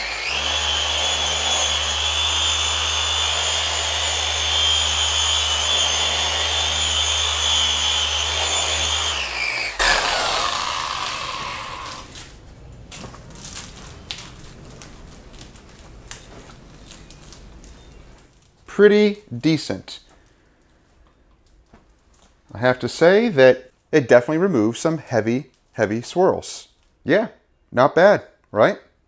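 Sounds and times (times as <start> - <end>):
car polisher running: 0.0 - 12.2.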